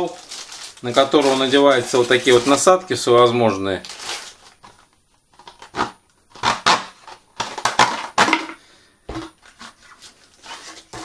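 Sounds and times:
rustling: 0:00.0 - 0:02.8, 0:03.8 - 0:05.7, 0:09.1 - 0:11.0.

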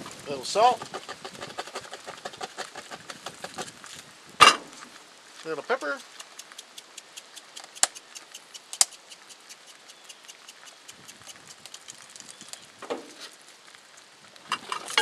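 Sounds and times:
eggs frying crackling: 0:00.0 - 0:15.0
sharp clicks: 0:05.7 - 0:12.6.

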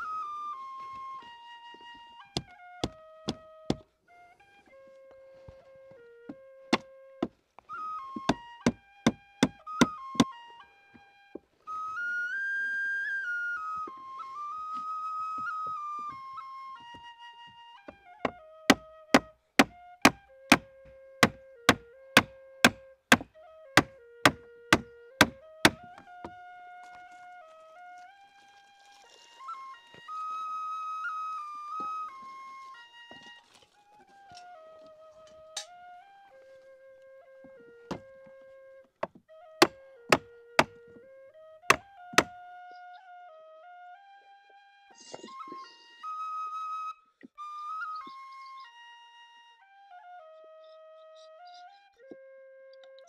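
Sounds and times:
flute melody: 0:00.0 - 0:53.0
hatchet striking wood: 0:02.4 - 0:03.8, 0:06.7 - 0:07.3, 0:08.2 - 0:10.3, 0:17.9 - 0:26.4, 0:39.0 - 0:40.8, 0:41.7 - 0:42.4
sharp wooden knocks: 0:08.2 - 0:10.3, 0:18.2 - 0:26.4, 0:39.0 - 0:40.8, 0:41.7 - 0:42.3.

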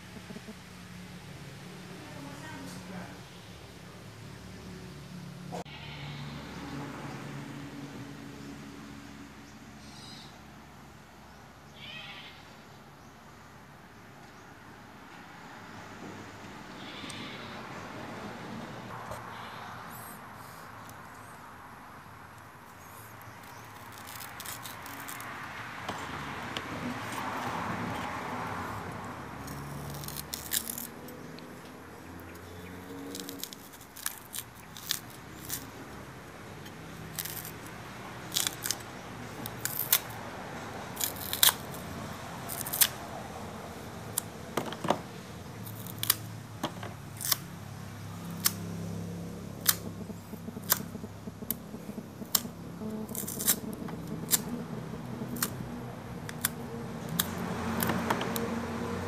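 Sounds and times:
knife cutting banana peel: 0:23.2 - 0:28.2, 0:29.4 - 0:31.4, 0:40.9 - 0:43.0, 0:45.6 - 0:46.3, 0:52.2 - 0:54.5, 0:56.3 - 0:58.6.

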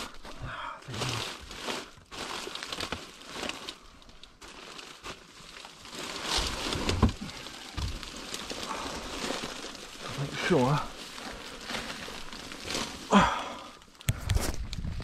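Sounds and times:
rustling and crinkling of crawling: 0:00.0 - 0:15.0.

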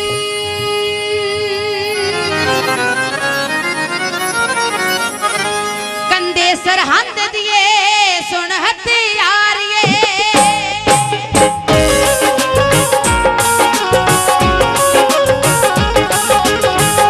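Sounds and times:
woman singing: 0:00.0 - 0:02.7, 0:06.1 - 0:12.3
harmonium melody: 0:00.0 - 0:17.0
tabla drumming: 0:09.6 - 0:17.0.

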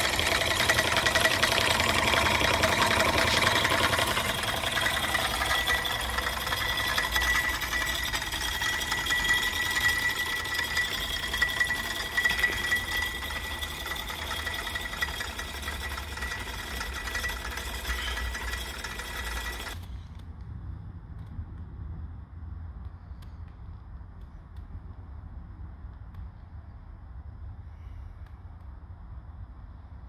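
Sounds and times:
fret saw blade whining: 0:00.0 - 0:20.0.

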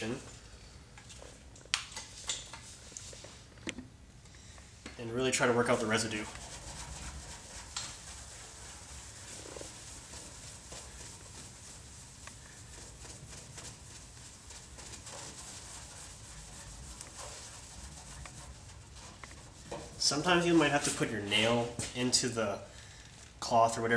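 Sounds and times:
cloth rubbing on car paint: 0:05.0 - 0:22.3.

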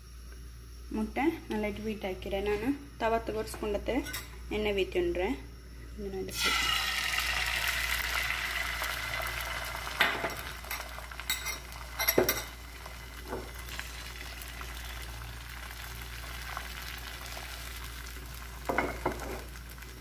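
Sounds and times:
egg sizzling in a frying pan: 0:06.3 - 0:20.0.

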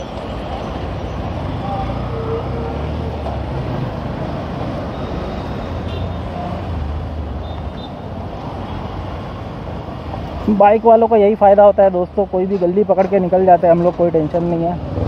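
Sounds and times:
traffic road noise: 0:00.0 - 0:15.0.

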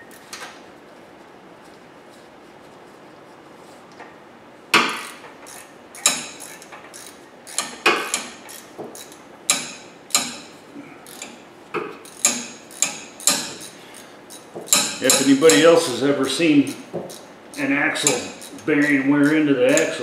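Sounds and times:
ratchet wrench clicking: 0:05.0 - 0:09.2, 0:11.0 - 0:11.4, 0:12.0 - 0:15.7, 0:16.7 - 0:20.0.

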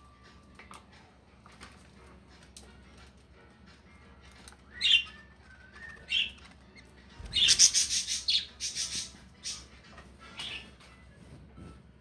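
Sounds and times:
budgerigar chirping: 0:04.7 - 0:09.7.

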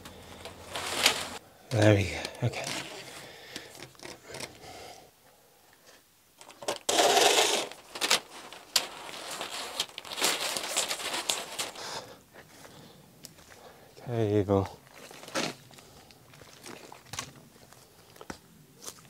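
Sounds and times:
rasping scrape: 0:06.9 - 0:09.8.

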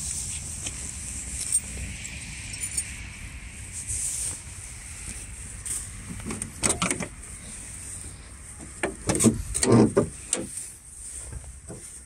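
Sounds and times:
truck grille panel clunks and rattles: 0:06.0 - 0:07.2, 0:08.6 - 0:12.0.

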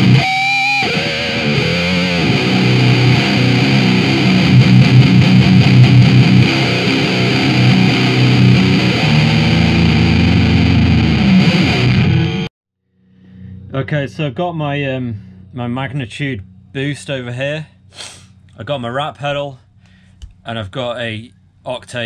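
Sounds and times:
distorted electric guitar: 0:00.0 - 0:12.5.

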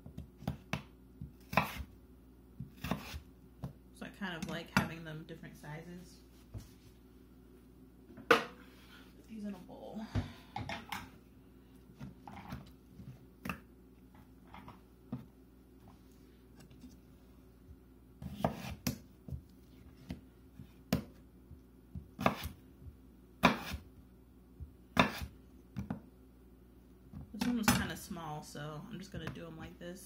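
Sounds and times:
knife cutting potatoes on board: 0:00.2 - 0:01.9, 0:02.6 - 0:03.7, 0:18.2 - 0:19.1, 0:22.0 - 0:22.6, 0:23.4 - 0:23.9, 0:24.9 - 0:26.0.

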